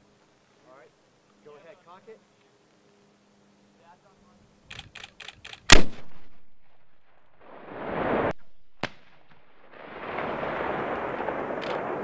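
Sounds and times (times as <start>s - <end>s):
light clicks: 4.7s - 5.7s
distant sharp crack: 4.7s - 6.9s, 7.7s - 12.0s
launcher firing loud blast: 5.7s - 12.0s.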